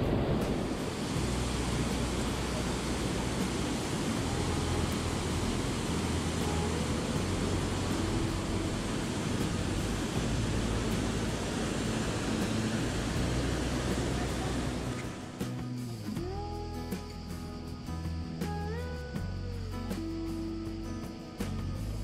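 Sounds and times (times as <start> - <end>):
waterfall roar: 0.0 - 15.5
whitewater splashing: 0.0 - 15.9.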